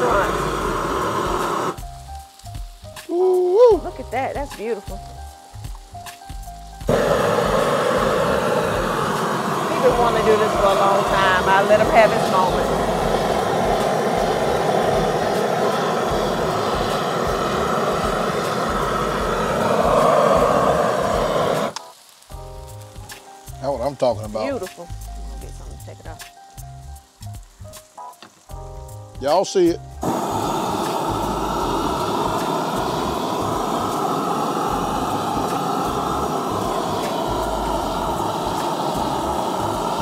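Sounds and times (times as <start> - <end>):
propane torch roaring: 0.0 - 2.8, 6.8 - 22.9, 29.5 - 40.0.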